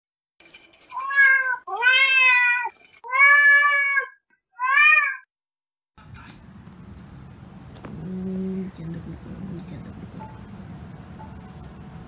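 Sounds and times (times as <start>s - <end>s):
cat meowing: 1.0s - 5.3s.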